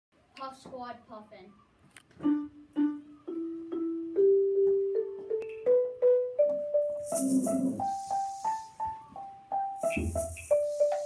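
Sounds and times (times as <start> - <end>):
shaker rattle: 7.0 - 8.8, 9.8 - 11.0.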